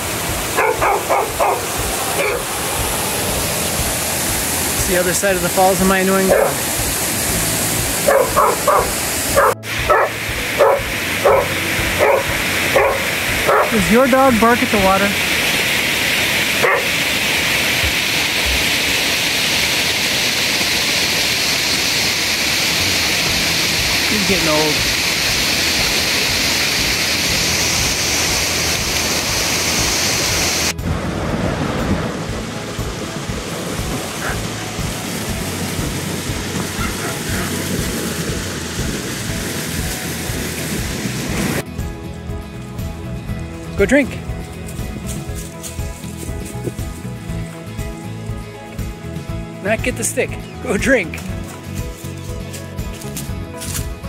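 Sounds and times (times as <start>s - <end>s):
creek rushing: 0.0s - 54.0s
small waterfall cascading: 0.0s - 54.0s
dog barking: 0.5s - 2.5s, 6.3s - 6.6s, 8.0s - 13.8s, 16.6s - 17.0s, 34.2s - 34.4s, 36.8s - 37.6s.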